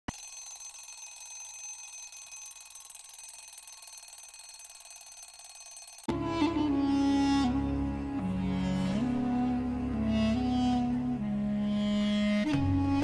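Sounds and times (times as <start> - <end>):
high-pitched electronic ringing: 0.1 - 6.1
music: 6.1 - 13.0.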